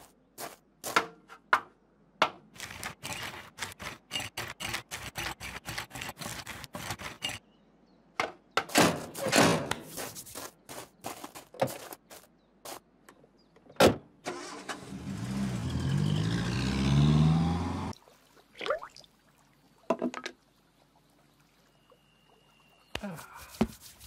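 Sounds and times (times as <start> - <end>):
footsteps: 9.1 - 12.8.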